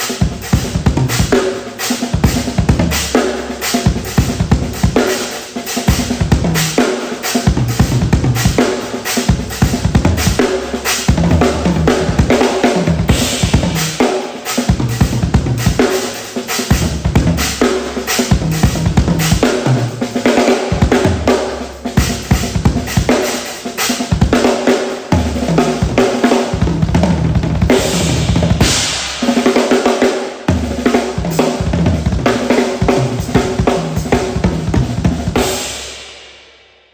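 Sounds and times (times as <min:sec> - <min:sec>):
acoustic drum kit playing: 0:00.0 - 0:36.2
cymbal crash: 0:27.7 - 0:29.8.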